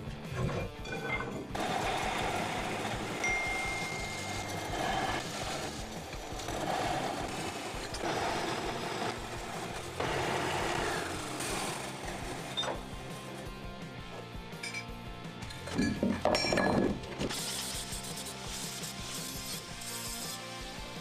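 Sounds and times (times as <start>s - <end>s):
band saw cutting metal: 1.4s - 13.6s, 17.3s - 21.0s.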